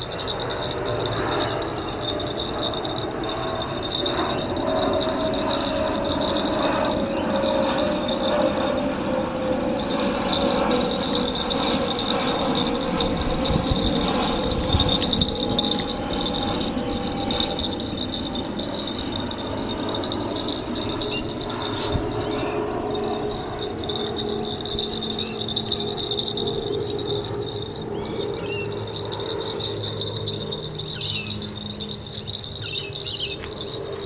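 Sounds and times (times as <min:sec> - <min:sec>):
crickets chirring: 0:00.0 - 0:34.0.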